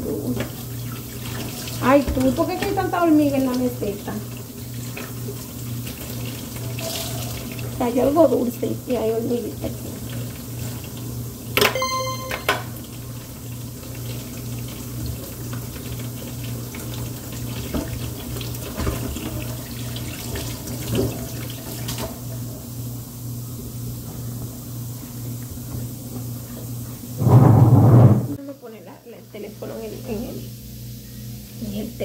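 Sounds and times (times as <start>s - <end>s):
brief ringing tone: 11.6s - 12.8s
countertop being wiped: 27.2s - 28.3s.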